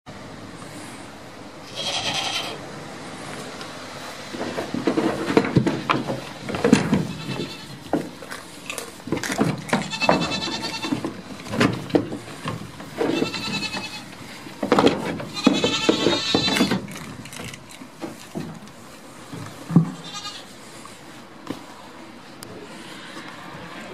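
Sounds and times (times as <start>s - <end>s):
goat kids bleating: 1.6s - 2.6s, 5.6s - 8.2s, 9.7s - 11.2s, 12.9s - 14.5s, 15.2s - 16.9s, 19.8s - 20.6s
knocks and rustling: 4.1s - 20.2s.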